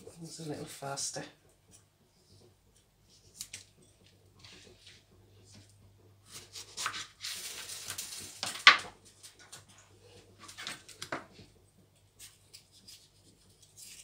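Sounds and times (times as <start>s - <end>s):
low steady hum: 0.0s - 14.0s
knife sawing through tomato: 6.2s - 7.7s.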